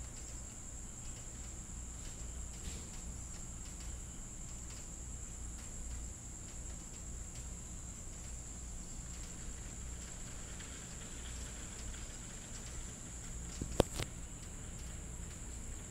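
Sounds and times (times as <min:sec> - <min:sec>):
crickets chirring: 0:00.0 - 0:15.9.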